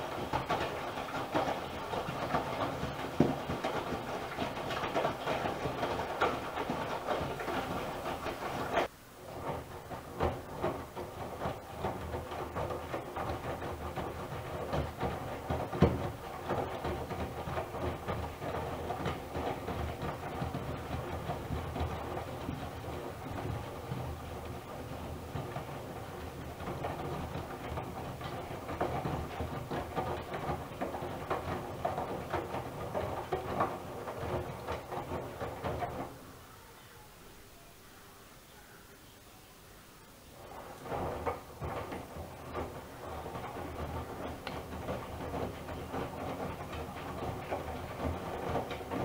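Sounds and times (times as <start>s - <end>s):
water sloshing: 0.0s - 8.9s
washing machine drum hum: 0.0s - 39.0s, 39.7s - 49.0s
laundry and water swishing: 0.0s - 49.0s.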